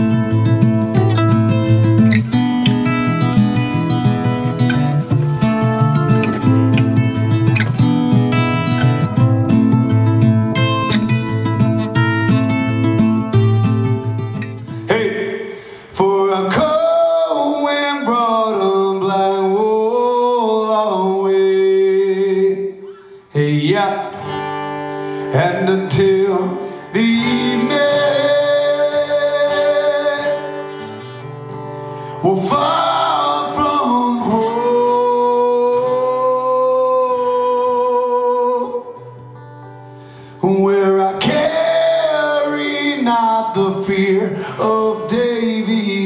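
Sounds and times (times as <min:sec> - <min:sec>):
acoustic guitar: 0:00.0 - 0:46.0
man singing: 0:03.3 - 0:07.6, 0:14.8 - 0:24.3, 0:25.3 - 0:30.9, 0:32.2 - 0:39.2, 0:40.4 - 0:46.0.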